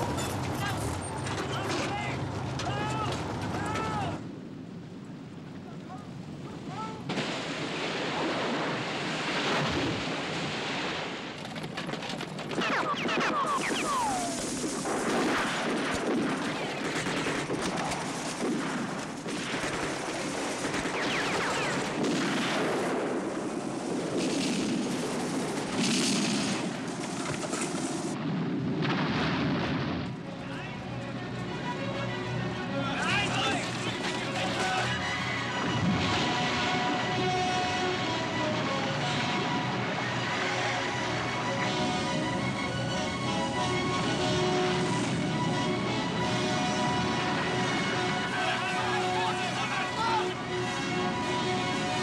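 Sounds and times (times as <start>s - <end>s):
rifle and machine-gun fire: 12.5s - 27.2s
falling whistles: 12.7s - 14.4s.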